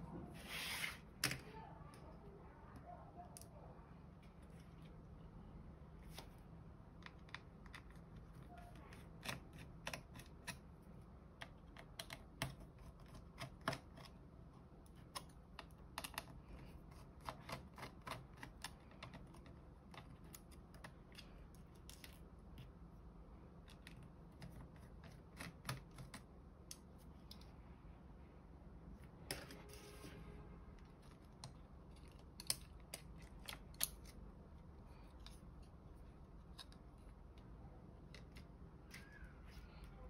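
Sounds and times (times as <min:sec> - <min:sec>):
faint room hum: 0:00.0 - 0:40.0.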